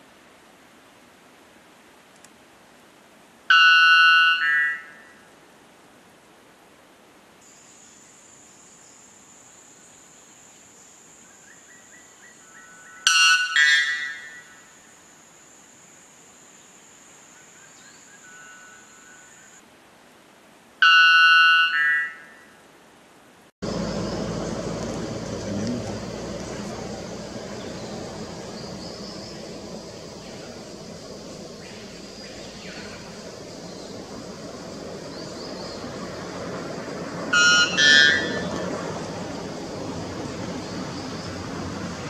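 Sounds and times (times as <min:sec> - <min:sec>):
low background noise: 0:00.0 - 0:42.0
bird giving loud ringing call: 0:03.5 - 0:05.0, 0:13.0 - 0:14.4, 0:37.3 - 0:38.5
bird two-note call: 0:03.5 - 0:05.0, 0:20.8 - 0:22.3.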